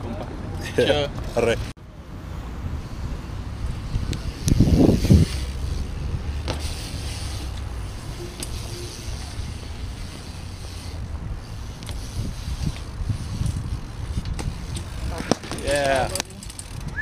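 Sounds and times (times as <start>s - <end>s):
bike tyres rolling on wet concrete: 0.5s - 17.0s
sharp clicks from bike: 4.0s - 5.8s, 6.4s - 17.0s.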